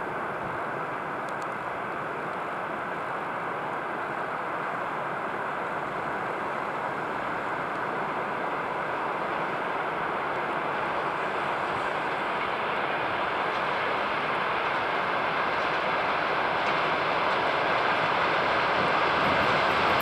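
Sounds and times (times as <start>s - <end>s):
electric locomotive running noise: 0.0s - 20.0s.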